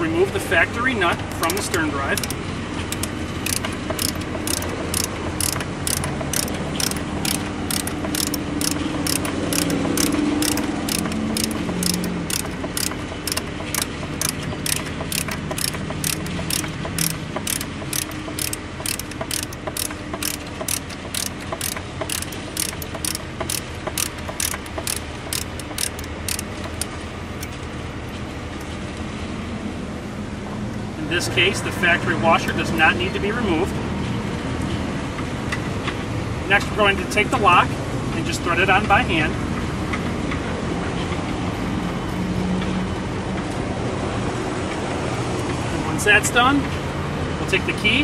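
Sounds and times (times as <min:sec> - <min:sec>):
ratchet wrench clicking: 0:01.4 - 0:27.6.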